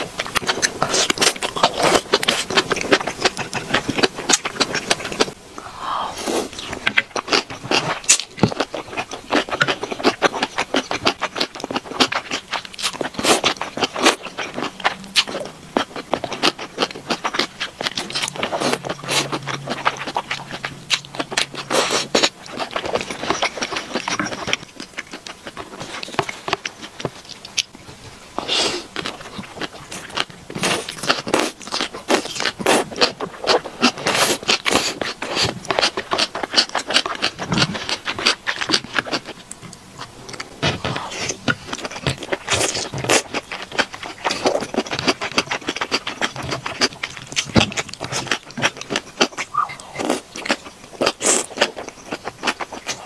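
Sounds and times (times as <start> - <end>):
wet crunching and chewing: 0.0 - 5.4, 6.1 - 53.0
slurping: 47.7 - 53.0.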